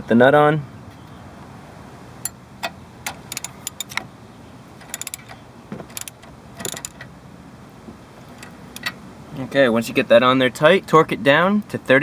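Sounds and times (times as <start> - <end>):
socket ratchet clicking: 2.2 - 4.1, 4.8 - 7.1.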